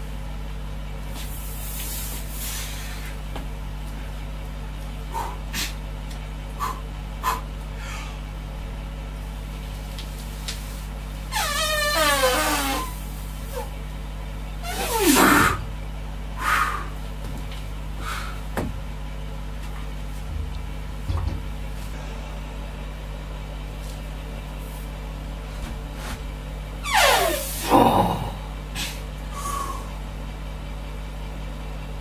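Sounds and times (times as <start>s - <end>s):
steady low hum: 0.0s - 32.0s
breathy inhale: 1.6s - 3.2s, 6.6s - 8.3s, 16.4s - 17.0s, 18.0s - 18.5s, 27.5s - 30.0s
person straining groan: 27.4s - 29.9s.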